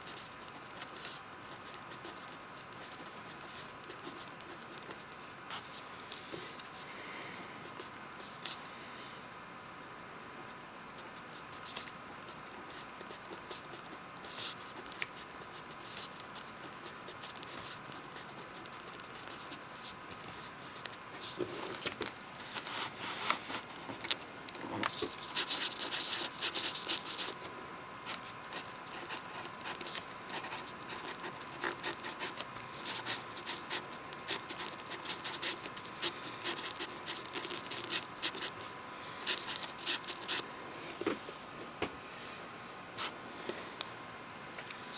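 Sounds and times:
pen scratching on paper: 0.0s - 5.8s, 11.0s - 21.9s, 24.8s - 27.4s, 28.0s - 38.6s, 39.2s - 40.4s.

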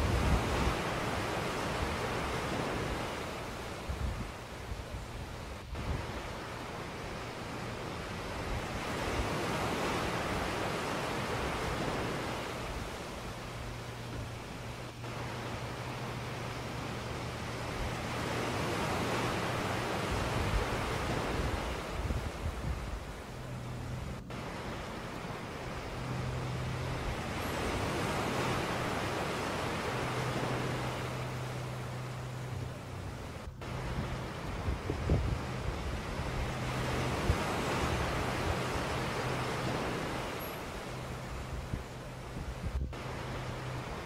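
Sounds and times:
steady rushing noise: 0.0s - 44.0s
low hum: 11.4s - 44.0s.

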